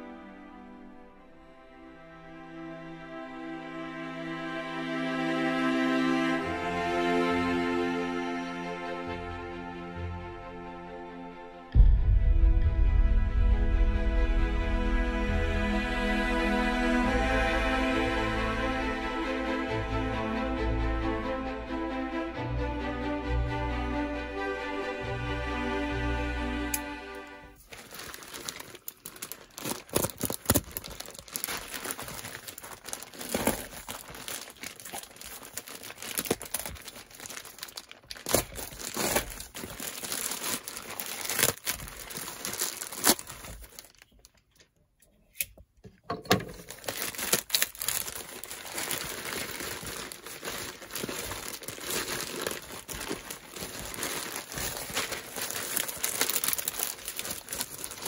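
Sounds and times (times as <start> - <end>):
packaging tearing: 27.6 - 44.4, 46.5 - 58.0
packaging crinkling: 27.6 - 44.6, 46.4 - 58.0.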